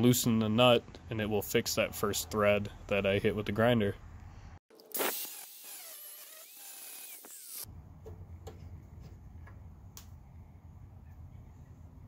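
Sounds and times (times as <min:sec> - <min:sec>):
angle grinder cutting metal: 0:04.9 - 0:07.7.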